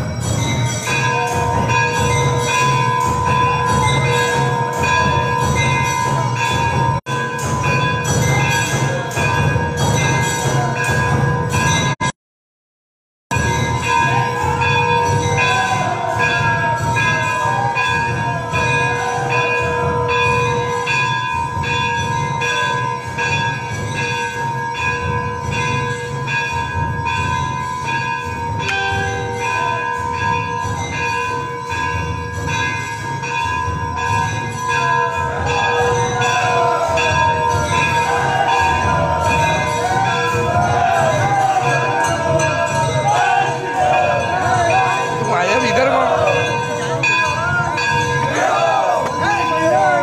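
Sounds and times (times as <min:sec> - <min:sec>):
temple bells ringing: 0:00.0 - 0:12.1, 0:13.3 - 0:50.0.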